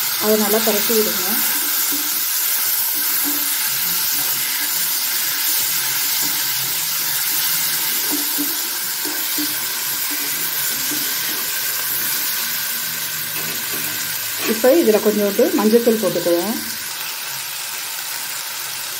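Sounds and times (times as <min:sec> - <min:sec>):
vegetables sizzling in hot oil: 0:00.0 - 0:18.9
metal spatula stirring: 0:00.6 - 0:12.6.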